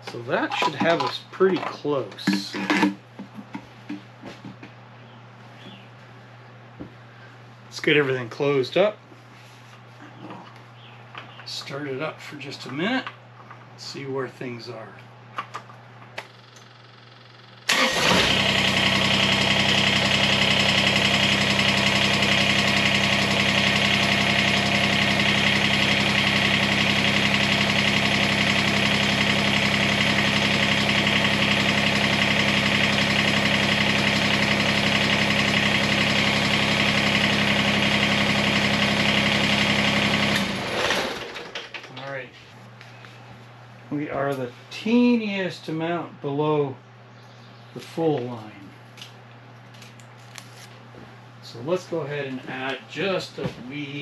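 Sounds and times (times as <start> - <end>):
tractor diesel engine running: 17.7 - 41.7.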